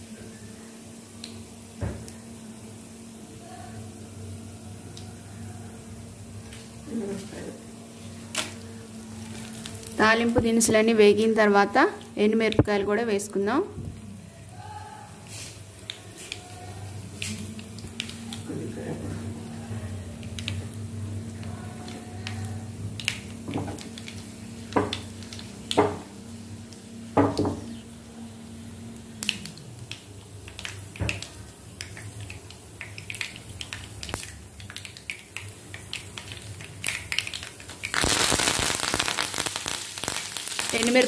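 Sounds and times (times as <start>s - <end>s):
leaves sizzling in hot oil: 0.0s - 13.6s, 14.2s - 41.0s
spices frying in oil: 0.0s - 41.0s
sharp pops and clicks: 29.2s - 40.8s.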